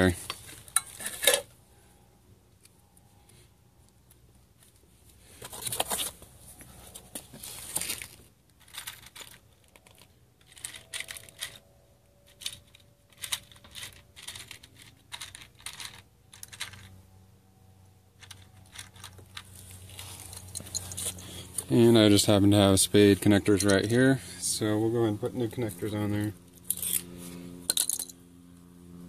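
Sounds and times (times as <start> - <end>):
cable rustling and scraping: 4.6 - 17.0, 18.2 - 22.3, 26.6 - 27.4.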